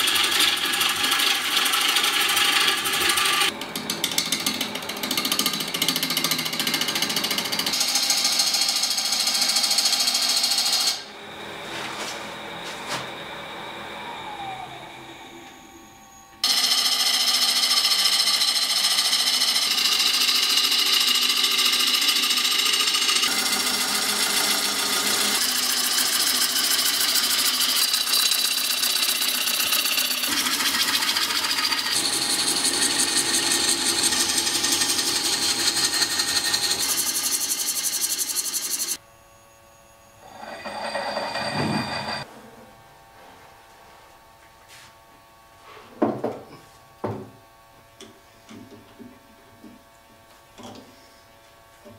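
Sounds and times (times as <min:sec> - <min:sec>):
gouge cutting wood on lathe: 0:00.0 - 0:11.1, 0:16.4 - 0:39.0.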